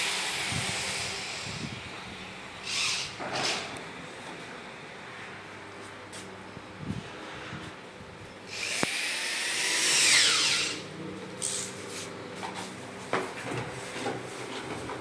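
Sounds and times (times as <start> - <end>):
electric drill winding down: 0.0 - 1.8, 2.6 - 3.2, 8.5 - 10.8.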